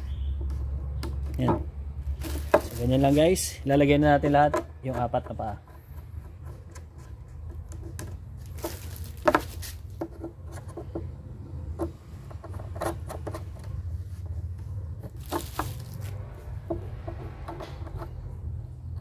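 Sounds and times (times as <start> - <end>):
wooden knocks and taps: 9.2 - 11.2, 16.6 - 18.2.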